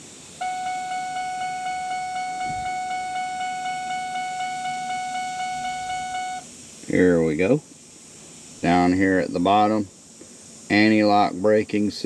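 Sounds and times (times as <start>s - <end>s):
electronic warning tone: 0.4s - 6.4s.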